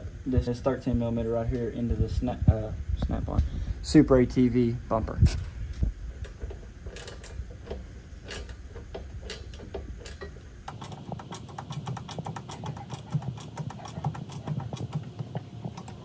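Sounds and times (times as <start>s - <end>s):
hand ratchet clicking: 6.2s - 16.0s.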